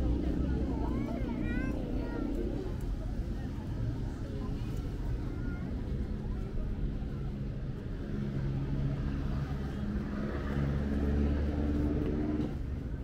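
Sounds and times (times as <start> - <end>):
passing vehicle engine: 7.9 - 13.0.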